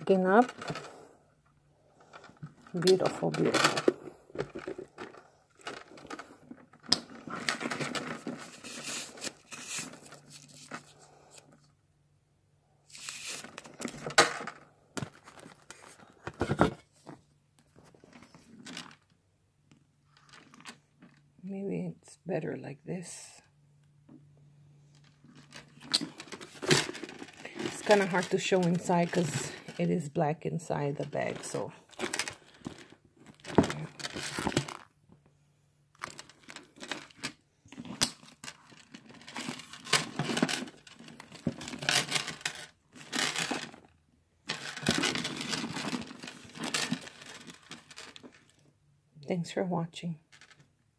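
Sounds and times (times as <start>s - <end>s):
plastic and paper rustling: 2.0s - 11.7s, 12.9s - 19.1s, 25.0s - 30.0s, 30.8s - 35.0s, 36.0s - 43.9s, 44.5s - 48.6s.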